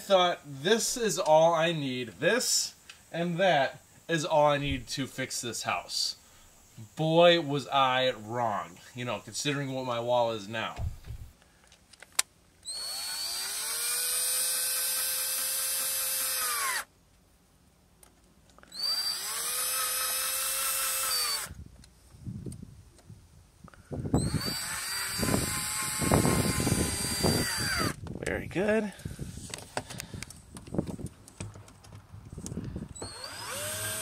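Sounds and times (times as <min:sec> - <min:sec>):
cordless drill motor whining: 0:12.6 - 0:16.9, 0:18.6 - 0:21.6, 0:24.0 - 0:28.0, 0:32.4 - 0:34.0.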